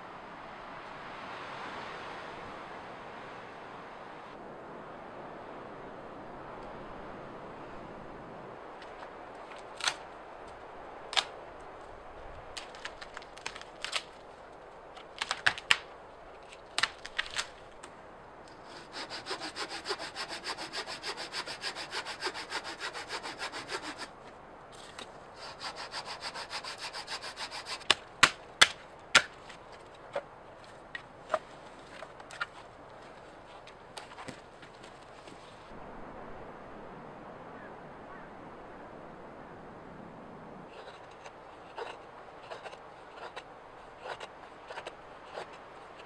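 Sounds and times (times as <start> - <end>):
dry wood snapping: 8.8 - 10.1, 11.1 - 11.4, 12.5 - 14.2, 14.9 - 17.9, 26.4 - 32.6
frame saw cutting wood: 18.5 - 24.2, 25.4 - 28.0, 40.7 - 46.0.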